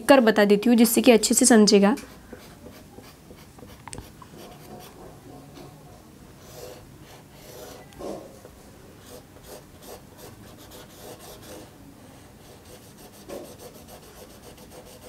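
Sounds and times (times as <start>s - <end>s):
marker scratching on whiteboard: 2.1s - 5.1s, 6.4s - 11.7s, 12.4s - 15.0s.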